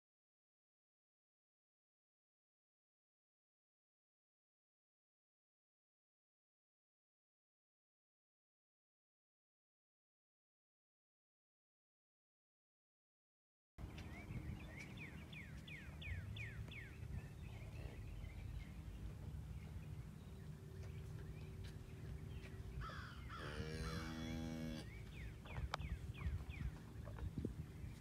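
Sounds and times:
birds chirping: 0:13.8 - 0:28.0
cow mooing: 0:23.4 - 0:24.9.

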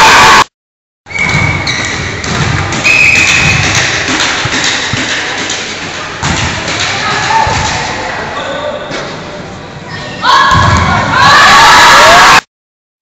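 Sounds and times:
crowd shouting and cheering: 0:00.0 - 0:00.5, 0:09.9 - 0:12.5
shoe squeaks on court: 0:01.1 - 0:02.2.

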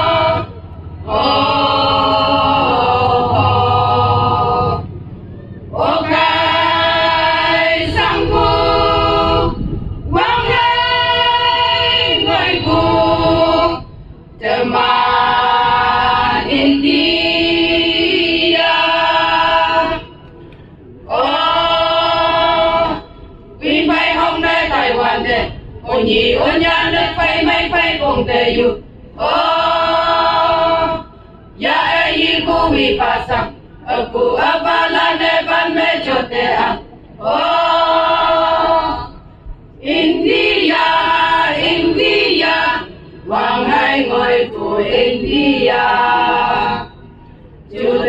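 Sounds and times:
women singing through microphones: 0:00.0 - 0:05.0, 0:05.6 - 0:48.0.

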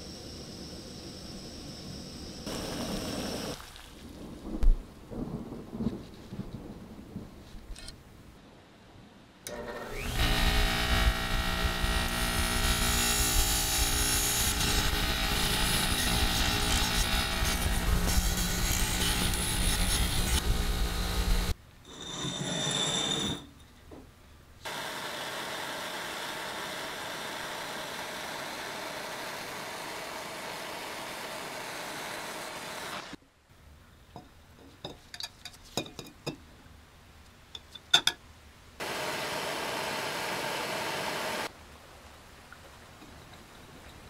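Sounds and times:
gas torch hissing: 0:00.0 - 0:03.6.

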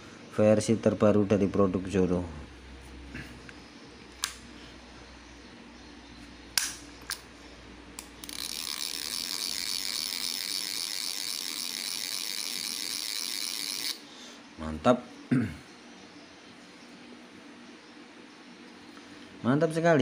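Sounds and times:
fishing reel clicks: 0:08.0 - 0:14.0
fishing reel ratcheting buzz: 0:08.0 - 0:14.0.

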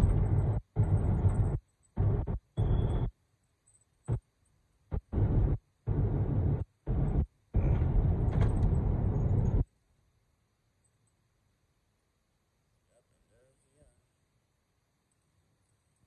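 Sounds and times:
car road and wind noise: 0:00.0 - 0:03.1, 0:04.9 - 0:09.7.

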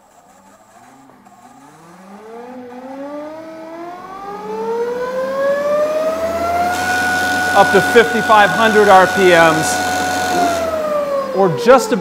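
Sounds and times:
drill press motor whining: 0:04.0 - 0:12.0.

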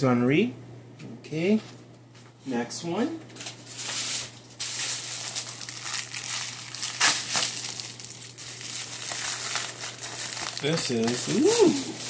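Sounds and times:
plastic packaging crinkling: 0:03.4 - 0:12.0.

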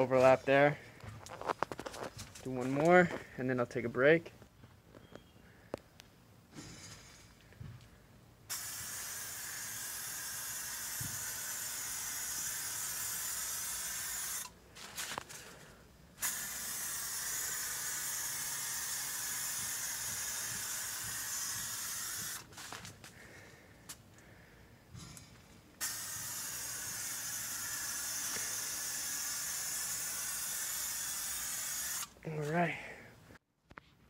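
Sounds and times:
aerosol can spraying: 0:08.5 - 0:14.5, 0:16.2 - 0:22.8, 0:25.8 - 0:32.2.

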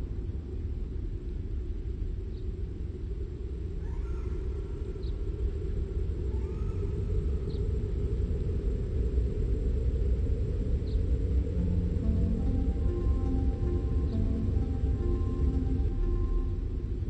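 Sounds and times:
low rumbling drone: 0:04.5 - 0:17.0
faint gliding tones: 0:10.5 - 0:17.0.

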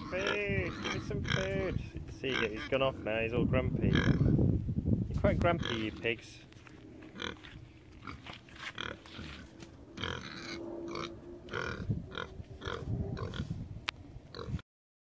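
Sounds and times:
pigs grunting: 0:00.0 - 0:04.4, 0:05.6 - 0:06.2, 0:07.1 - 0:13.5, 0:14.3 - 0:14.6.

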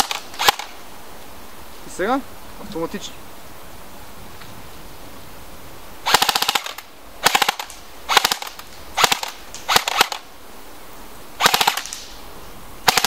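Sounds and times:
airsoft rifle firing bursts: 0:06.0 - 0:10.2, 0:11.4 - 0:12.0.

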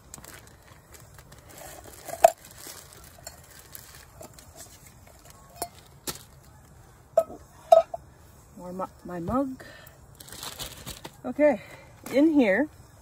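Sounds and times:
campfire crackling: 0:00.0 - 0:13.0
camp dishes clinking: 0:01.0 - 0:08.2.

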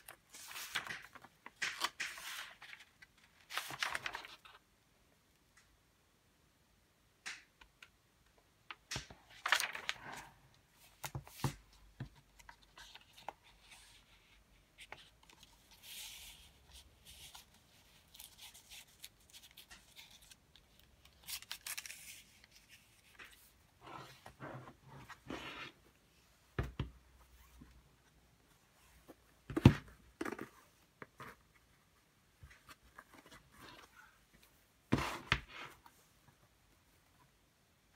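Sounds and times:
paper rustling: 0:00.0 - 0:04.6, 0:09.0 - 0:10.3, 0:12.4 - 0:23.6.

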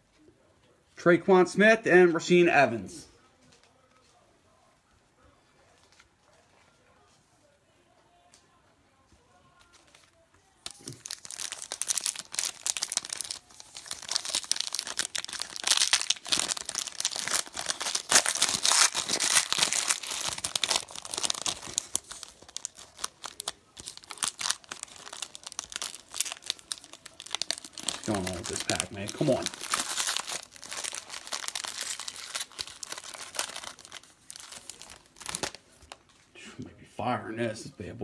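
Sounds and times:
foil wrapper crinkling and tearing: 0:10.6 - 0:36.0.

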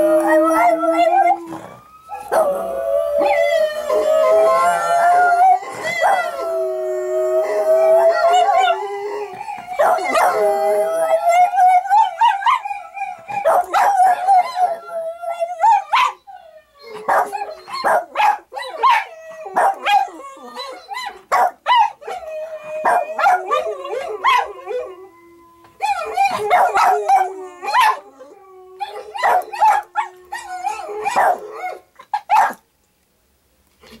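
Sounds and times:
recorded dog howls: 0:00.0 - 0:16.2
dog howling: 0:00.0 - 0:21.2, 0:22.0 - 0:31.8
dog yips and barks: 0:13.4 - 0:13.9, 0:17.1 - 0:20.0, 0:31.0 - 0:31.5, 0:32.1 - 0:32.6.

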